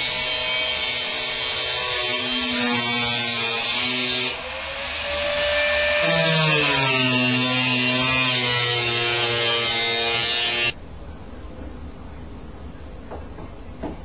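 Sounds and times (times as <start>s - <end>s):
electric drill whining: 4.3s - 10.8s.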